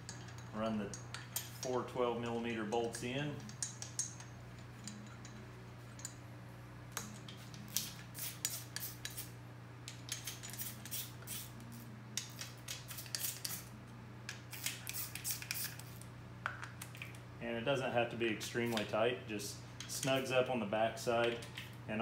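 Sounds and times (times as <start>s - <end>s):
metal socket clinking on bolts: 2.8s - 6.2s.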